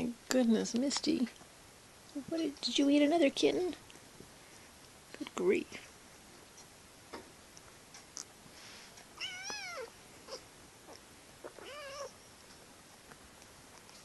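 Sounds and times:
kitten meowing: 9.2 - 10.4, 11.4 - 12.2.

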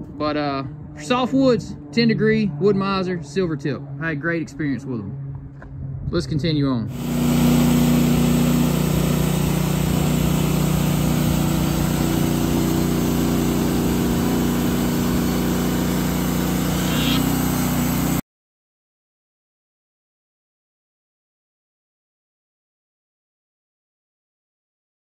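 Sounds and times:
band sawmill sawing wood: 6.9 - 18.2.

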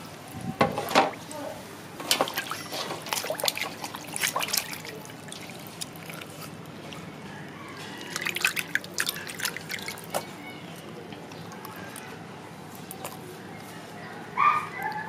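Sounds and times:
water splashing in metal bowl: 2.0 - 7.1, 7.8 - 10.4.

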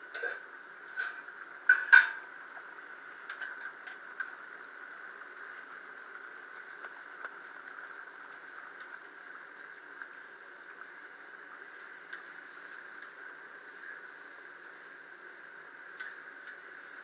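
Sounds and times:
gravy boiling in a pot: 0.0 - 17.0.

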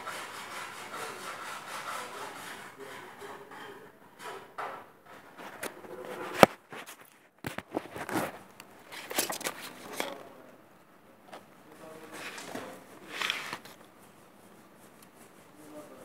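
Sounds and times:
rustling handling noises: 5.2 - 10.6, 11.2 - 16.0.

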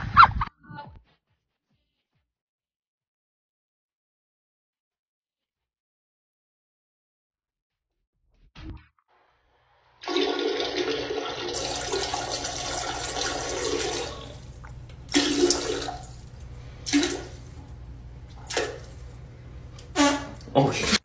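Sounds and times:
toilet flushing: 10.0 - 21.0.

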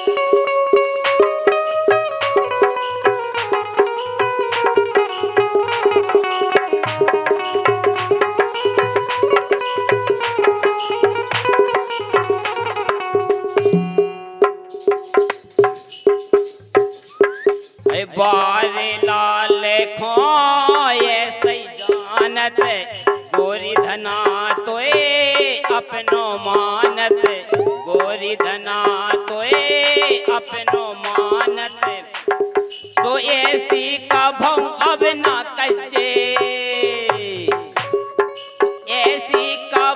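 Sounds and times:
rattling hand percussion: 0.0 - 39.9
wavering melody line: 13.6 - 14.7.

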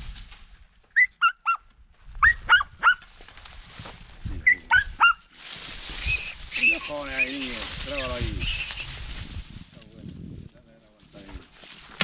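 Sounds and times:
dogs yelping: 1.0 - 1.6, 2.2 - 3.0, 4.5 - 5.3.

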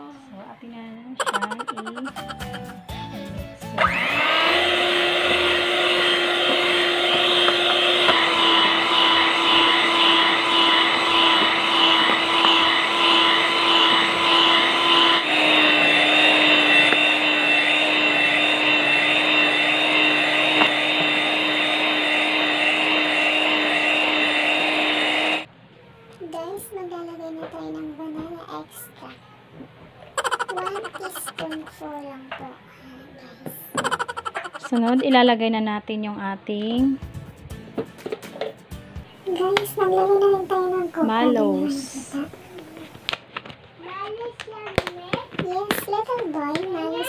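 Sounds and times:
electric hand mixer whipping cream: 3.6 - 25.5, 30.2 - 31.8, 33.7 - 35.1, 39.3 - 43.1.

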